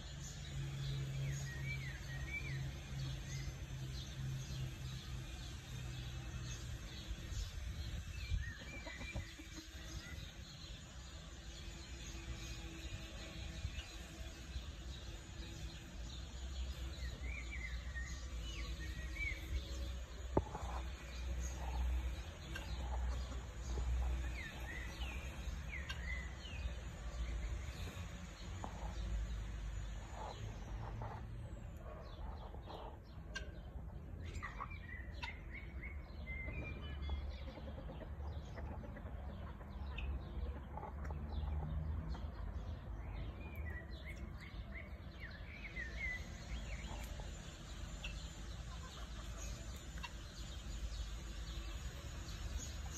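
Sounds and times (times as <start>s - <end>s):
chickens clucking: 8.5s - 10.3s, 19.7s - 42.9s, 43.5s - 52.9s.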